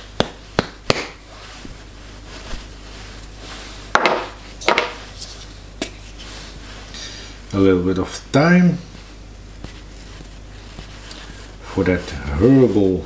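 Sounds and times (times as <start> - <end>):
knocks on cutting board: 4.0 - 5.0.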